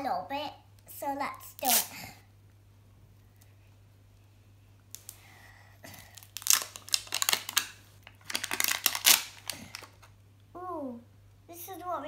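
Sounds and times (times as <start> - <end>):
wrapper crinkling and tearing: 5.9 - 10.1.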